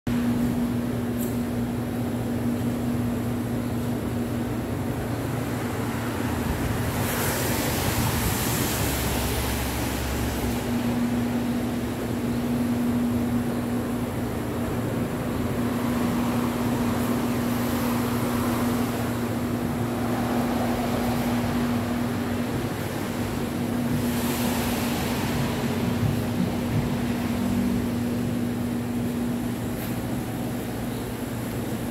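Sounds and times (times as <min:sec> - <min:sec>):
low mechanical hum: 0:00.1 - 0:31.9
street traffic: 0:00.1 - 0:31.9.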